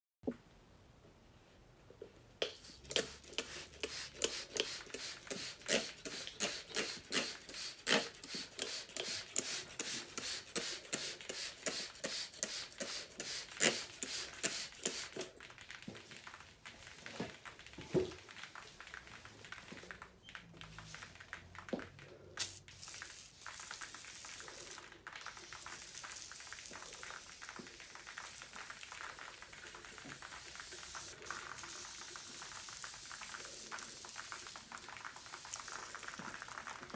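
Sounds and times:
compressed-air spray hissing: 2.4 - 15.3, 22.4 - 36.7.

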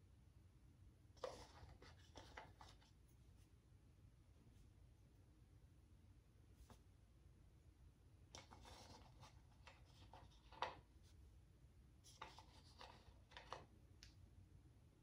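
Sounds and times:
paper cutouts rustling: 1.2 - 3.0, 8.4 - 10.9, 12.1 - 13.7.

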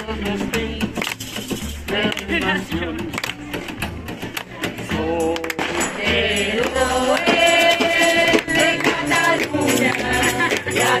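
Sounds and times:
man singing through megaphone: 0.0 - 1.0, 4.9 - 6.3
drums: 0.0 - 11.0
upright double bass: 0.0 - 11.0.

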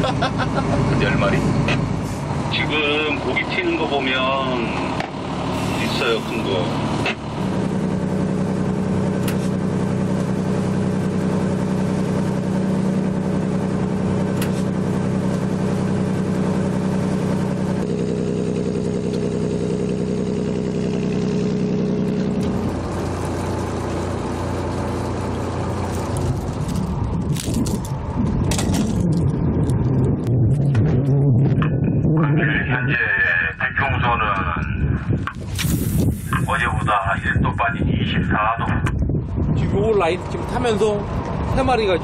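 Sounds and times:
boat engine humming: 0.0 - 30.4, 40.0 - 42.0.

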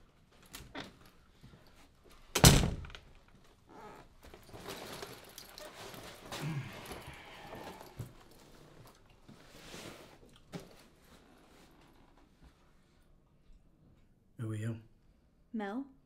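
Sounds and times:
rustling of movement: 3.4 - 13.0.

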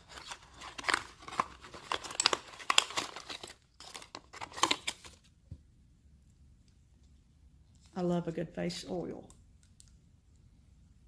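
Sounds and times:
cardboard packaging crinkling and tearing: 0.0 - 5.3.

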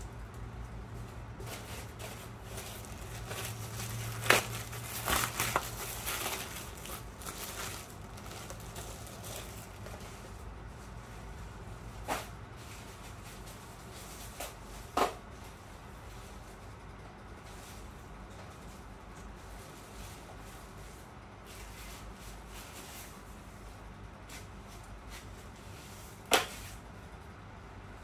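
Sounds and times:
plastic packaging crinkling: 1.4 - 10.4.

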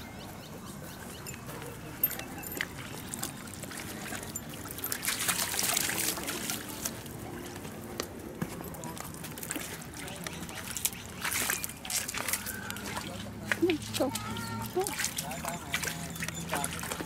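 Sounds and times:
stream trickling: 0.0 - 17.0
water splashing around dog's legs: 1.0 - 17.0.

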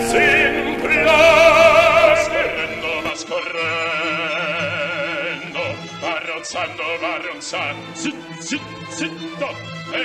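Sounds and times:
singing with orchestra: 0.0 - 10.0.

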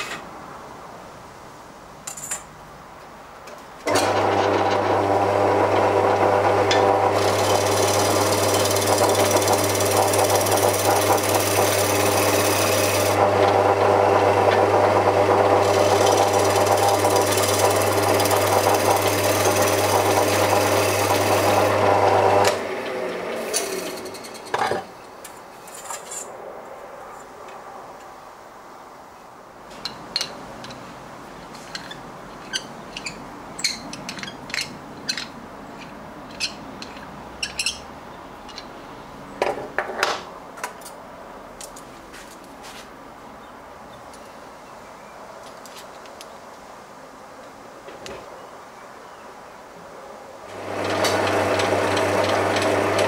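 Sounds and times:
wood lathe motor humming: 3.9 - 24.2, 50.5 - 53.0
turning tool cutting wood hiss: 7.2 - 13.2, 15.6 - 22.6.

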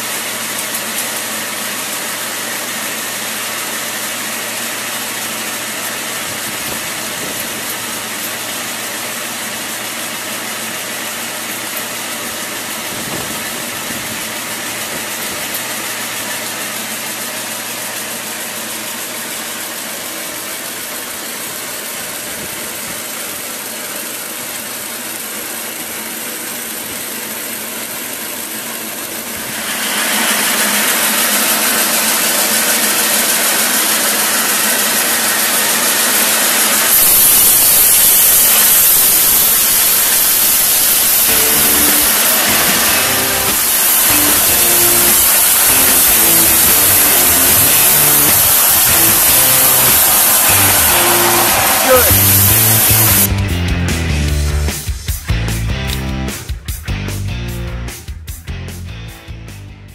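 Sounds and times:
sawmill running: 0.0 - 58.0
band saw cutting timber: 25.6 - 54.9.

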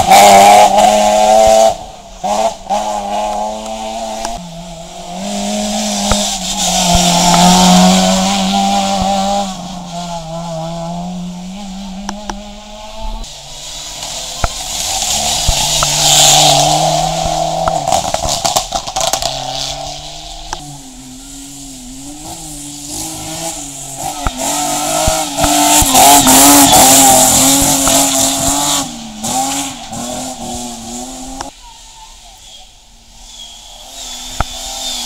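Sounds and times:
rally car engine revving: 0.0 - 31.6, 33.1 - 35.0
tyre squeal: 31.8 - 35.0.

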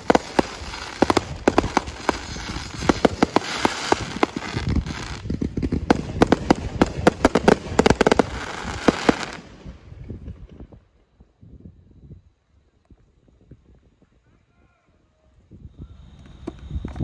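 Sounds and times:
fireworks bangs and crackles: 0.0 - 11.8.

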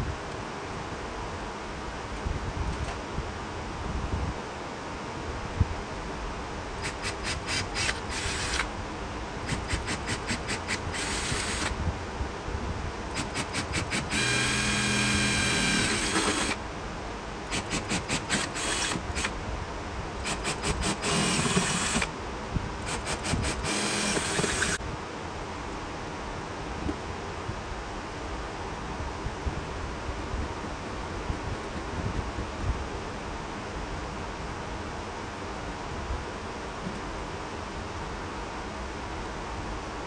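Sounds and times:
cordless drill boring through metal: 6.8 - 8.7, 9.5 - 11.7, 13.1 - 16.6, 17.5 - 19.3, 20.2 - 22.1, 22.8 - 24.8.

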